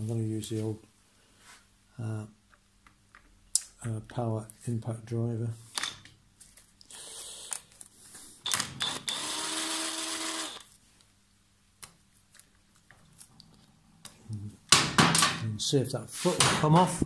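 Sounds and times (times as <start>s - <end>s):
impact driver bursts: 8.4s - 10.7s.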